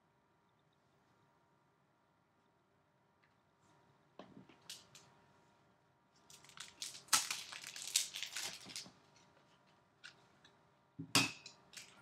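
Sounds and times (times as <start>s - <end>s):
packaging crinkling and rustling: 6.3s - 9.7s.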